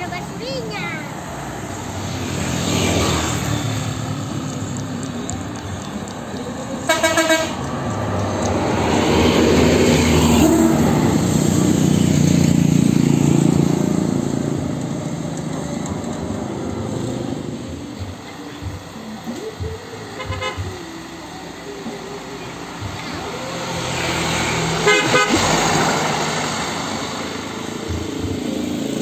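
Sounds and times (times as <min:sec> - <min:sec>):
bus engine rumble passing: 0:00.0 - 0:20.0, 0:20.6 - 0:29.0
bus horn blasts: 0:06.8 - 0:07.8, 0:20.1 - 0:20.8, 0:24.8 - 0:26.0.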